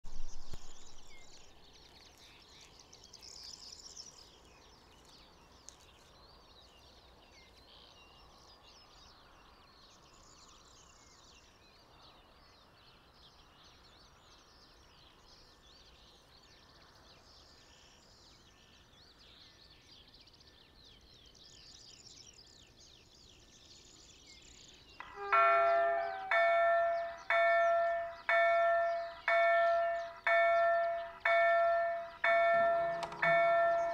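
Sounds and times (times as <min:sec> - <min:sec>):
level crossing warning bell: 0:25.0 - 0:33.9.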